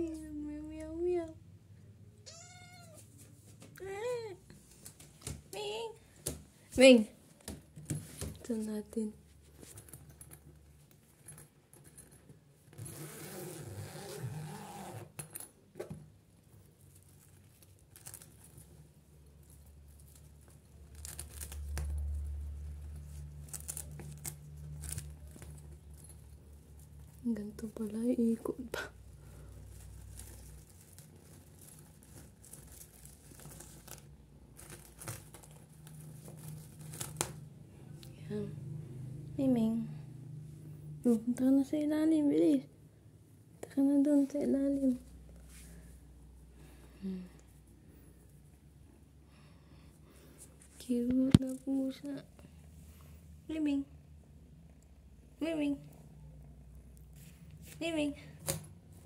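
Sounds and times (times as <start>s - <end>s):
zipper and fabric rustling: 8.1s - 15.5s, 16.4s - 37.3s
zipper pull clicks: 12.7s - 15.3s.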